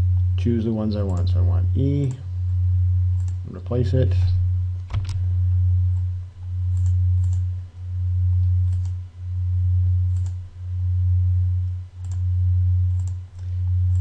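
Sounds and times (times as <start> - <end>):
loud low hum: 0.0 - 14.0
faint mouse clicks: 10.1 - 10.4.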